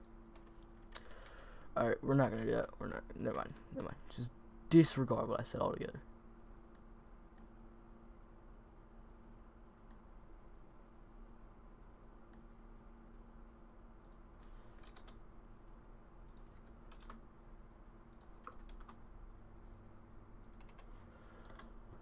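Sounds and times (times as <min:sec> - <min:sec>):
low steady hum: 0:00.0 - 0:22.0
computer keyboard and mouse clicks: 0:06.4 - 0:15.2, 0:15.8 - 0:17.2, 0:18.1 - 0:22.0.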